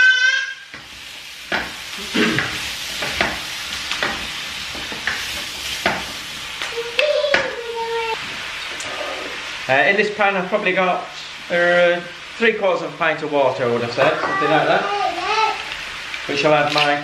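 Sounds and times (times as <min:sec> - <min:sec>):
vegetables sizzling in oil: 0:00.0 - 0:17.0
spatula scraping and tapping pan: 0:01.5 - 0:01.8, 0:02.4 - 0:06.2.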